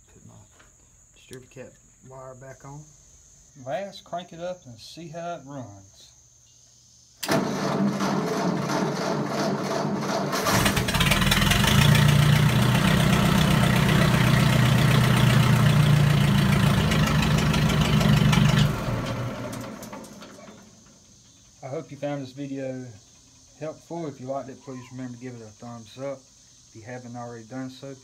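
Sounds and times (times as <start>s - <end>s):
starter motor cranking: 7.2s - 20.7s
tractor engine idling: 7.3s - 21.8s.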